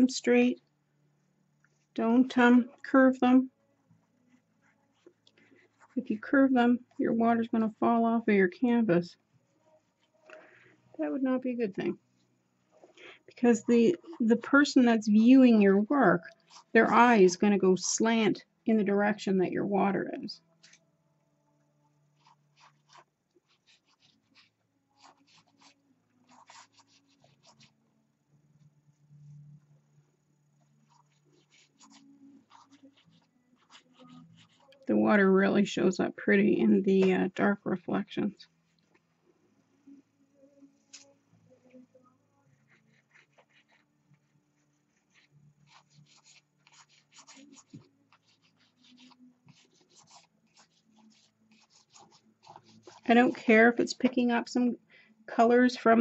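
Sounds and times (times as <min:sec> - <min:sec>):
palette knife scraping canvas: 0:22.2 - 0:27.7, 0:30.9 - 0:34.8, 0:42.5 - 0:43.9, 0:44.6 - 0:53.6.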